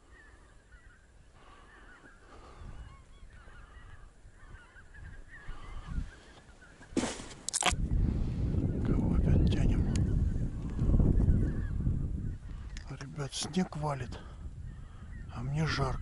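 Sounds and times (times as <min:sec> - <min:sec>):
loud sudden rustle: 0:07.0 - 0:07.7.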